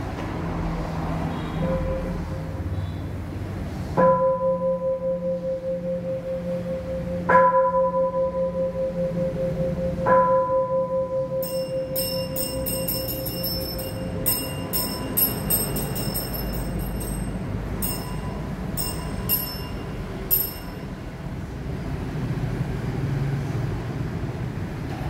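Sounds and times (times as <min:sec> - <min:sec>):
deep bowl bell ringing: 0:04.2 - 0:21.3
small hand bell ringing: 0:11.3 - 0:21.2.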